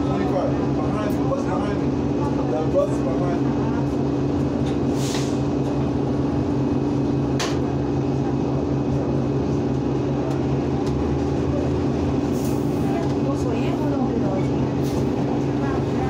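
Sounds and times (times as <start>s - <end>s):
bus engine hum: 0.0s - 16.0s
road noise: 0.0s - 16.0s
short hisses: 4.9s - 5.5s.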